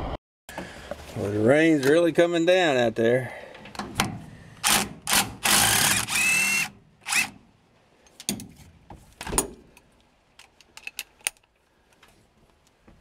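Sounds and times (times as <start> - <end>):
cordless drill whining: 4.6 - 7.4.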